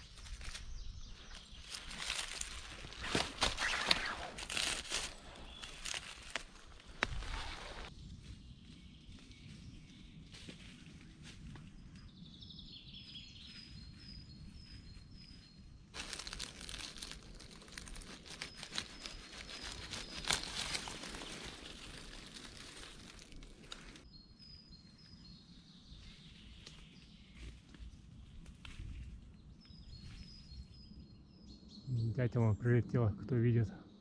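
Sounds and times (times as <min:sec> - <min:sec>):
dry leaves rustling and crackling: 0:00.0 - 0:00.7, 0:01.3 - 0:08.4, 0:16.0 - 0:24.0
small bird chirping: 0:12.0 - 0:22.8.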